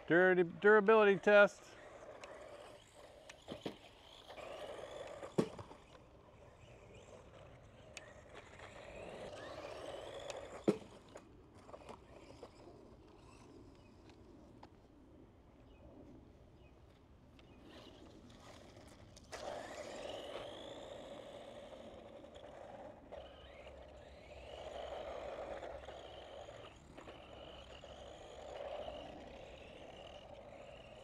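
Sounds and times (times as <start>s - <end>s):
electric motor whining: 0.0s - 14.1s, 17.4s - 31.0s
toy truck crashing: 1.8s - 6.0s, 17.7s - 31.0s.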